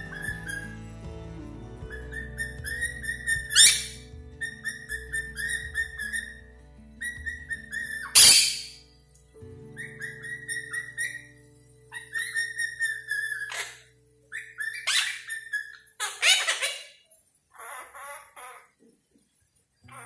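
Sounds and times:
parrots chirping: 0.0s - 1.0s, 1.9s - 8.8s, 9.8s - 18.9s
parrots squawking harshly: 1.9s - 6.4s, 7.0s - 8.8s, 11.9s - 18.8s.

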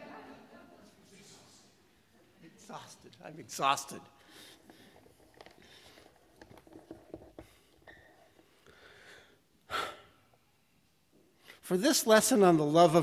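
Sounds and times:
small rustles: 4.2s - 8.7s
sharp intake of breath: 8.7s - 10.2s.

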